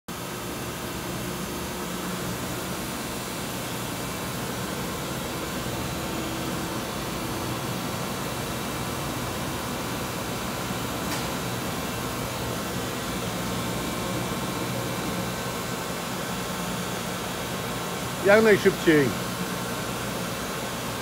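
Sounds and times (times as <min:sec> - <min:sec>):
machinery hum and hiss: 0:00.1 - 0:21.0.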